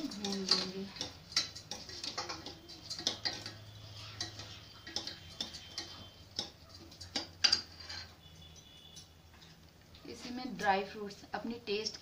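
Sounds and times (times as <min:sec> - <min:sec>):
spoon scraping steel pot: 0:00.0 - 0:09.6.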